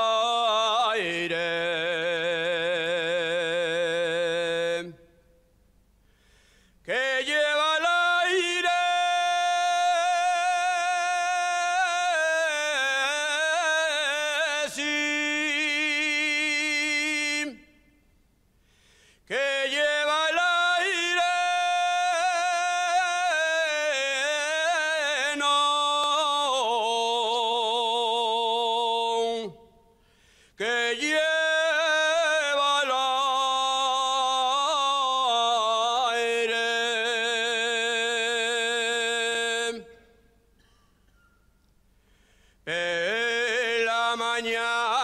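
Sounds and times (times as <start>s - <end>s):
man singing unaccompanied: 0.0s - 5.1s, 6.8s - 17.8s, 19.3s - 29.8s, 30.6s - 40.2s, 42.7s - 45.0s
short breath: 6.0s - 6.8s, 18.6s - 19.3s, 29.9s - 30.6s, 41.9s - 42.7s.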